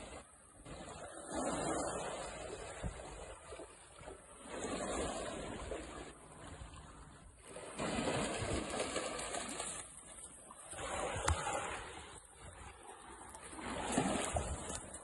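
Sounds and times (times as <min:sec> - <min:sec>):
dog splashing in water: 0:07.5 - 0:12.0, 0:13.5 - 0:15.0.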